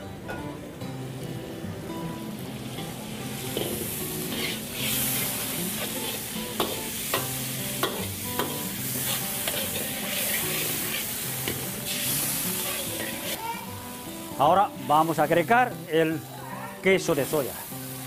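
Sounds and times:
sauce sizzling: 0.6s - 18.0s
metal ladle scraping a wok: 3.5s - 13.4s.

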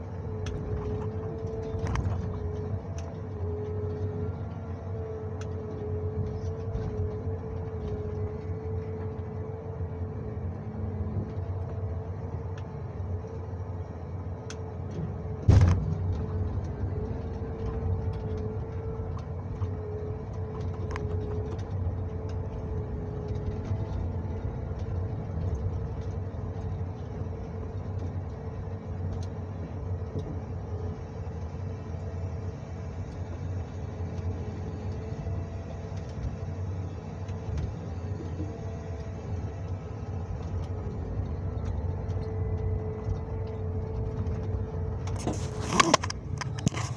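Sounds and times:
engine drone with whine: 0.0s - 46.9s
heavy thump: 15.5s - 16.0s.

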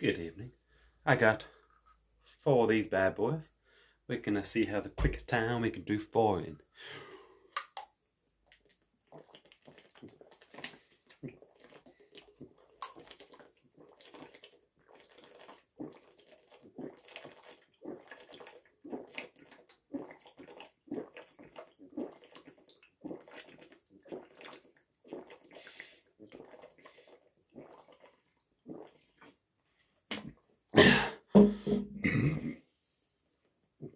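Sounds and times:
person gulping water from bottle: 7.4s - 29.4s, 30.1s - 32.6s.

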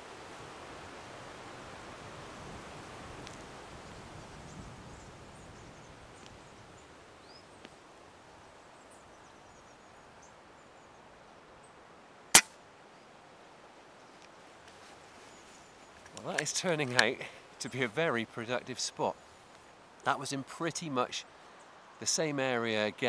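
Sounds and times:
faint wind rustle: 0.0s - 23.0s
air rifle shot crack: 12.4s - 12.6s.

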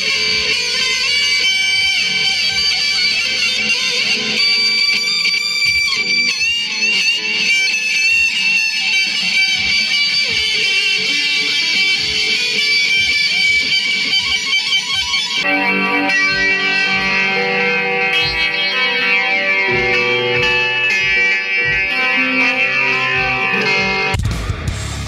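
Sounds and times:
lead electric guitar: 0.0s - 25.0s
kick drum beat: 19.7s - 22.0s.

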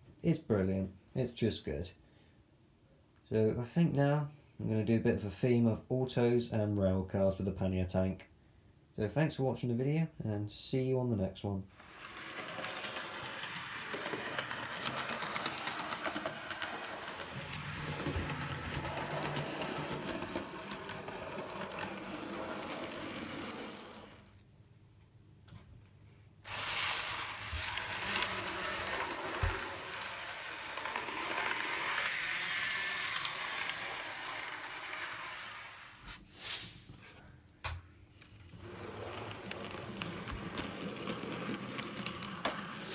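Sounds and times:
wheels clicking on track: 11.8s - 24.2s
small electric motor whirring: 26.5s - 36.0s.

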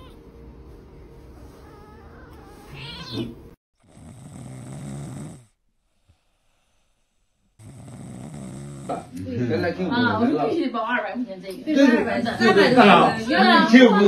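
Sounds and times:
cat meowing: 0.0s - 0.2s, 1.5s - 3.5s
cat snoring: 3.1s - 9.1s.

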